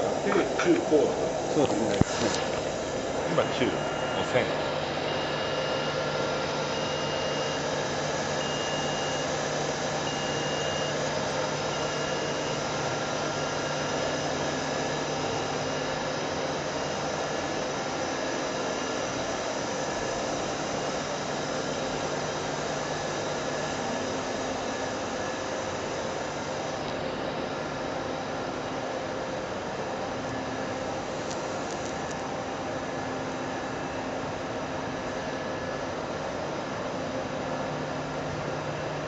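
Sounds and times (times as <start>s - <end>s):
machine tools humming: 0.0s - 28.8s.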